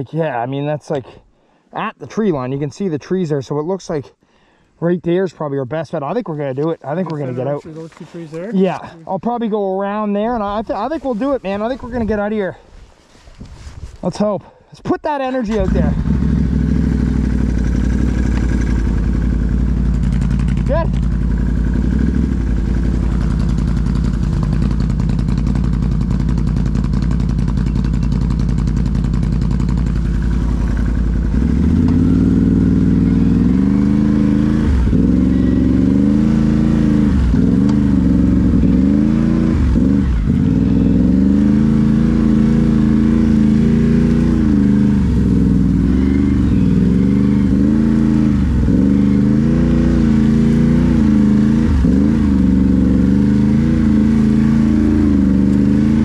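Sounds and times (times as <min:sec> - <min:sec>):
engine idling and revving: 0:15.5 - 0:56.0.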